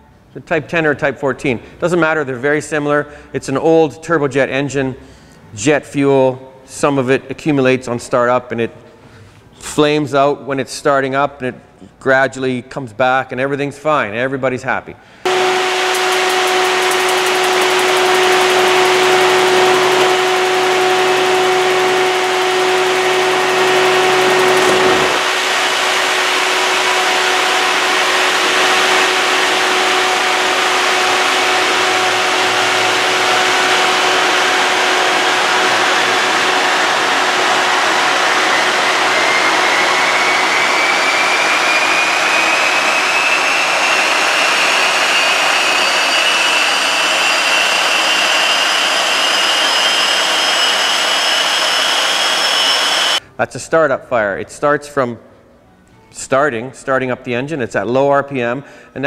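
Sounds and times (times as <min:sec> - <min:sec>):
jet engine rushing roar: 0:15.3 - 0:53.2
jet engine whine: 0:15.3 - 0:53.2.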